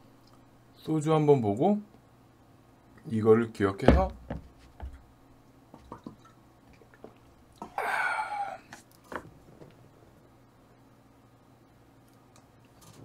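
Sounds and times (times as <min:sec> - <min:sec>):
breathy rush while eating: 0:07.6 - 0:08.8.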